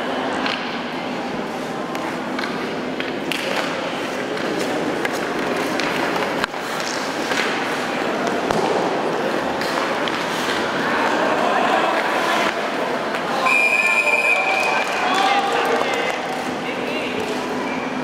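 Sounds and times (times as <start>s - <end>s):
hockey sticks clacking: 1.9s - 11.2s, 11.9s - 13.3s, 14.5s - 17.6s
echoing voices: 7.4s - 18.0s.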